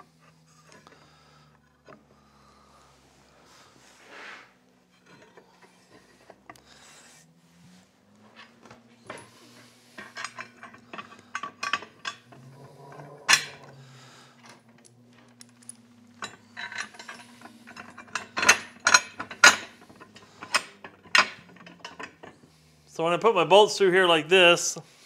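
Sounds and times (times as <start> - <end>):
metal parts clicking and clanking: 4.9 - 6.6, 8.2 - 22.5.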